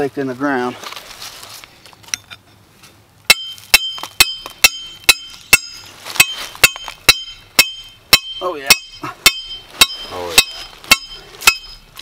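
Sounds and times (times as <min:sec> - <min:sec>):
hammer striking metal stake: 0:03.3 - 0:12.0.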